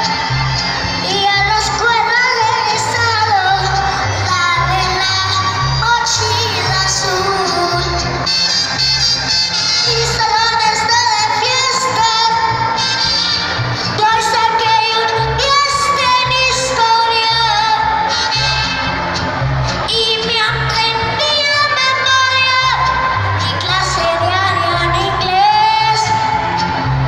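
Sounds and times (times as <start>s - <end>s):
boy singing into microphone: 1.0s - 8.1s, 9.9s - 12.7s, 14.0s - 18.0s, 19.9s - 26.3s.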